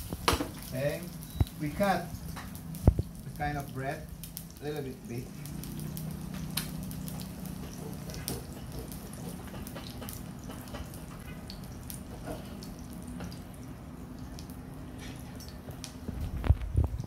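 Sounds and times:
eggs sizzling in a pan: 0.0s - 16.1s
pops and crackles: 2.3s - 3.1s, 5.4s - 10.8s.

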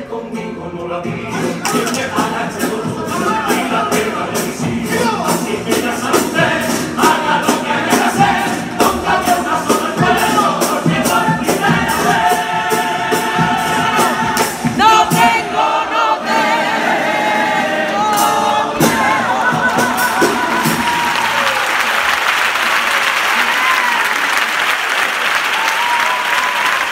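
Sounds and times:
male choir singing in harmony: 0.0s - 21.4s
steady drum beat: 1.0s - 21.4s.

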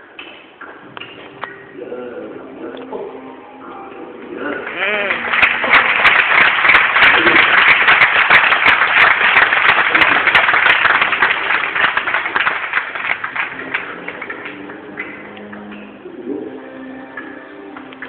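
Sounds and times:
audience applauding: 4.5s - 15.5s.

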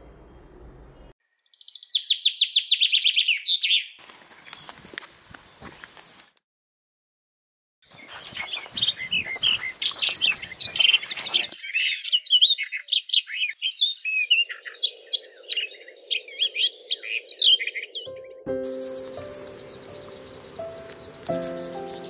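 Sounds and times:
birds chirping and singing: 1.4s - 4.8s, 7.9s - 22.0s.

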